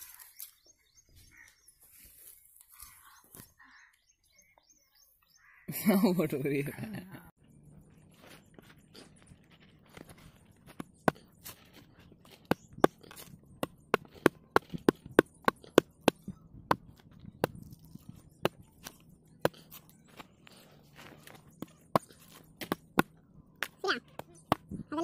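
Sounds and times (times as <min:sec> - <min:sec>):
blade chopping coconut husk: 0:09.9 - 0:24.8.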